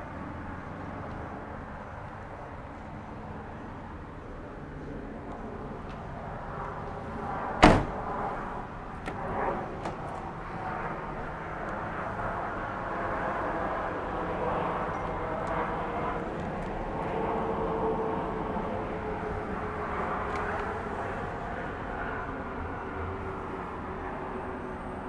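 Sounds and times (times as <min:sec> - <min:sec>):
car door slamming: 0:07.6 - 0:08.0.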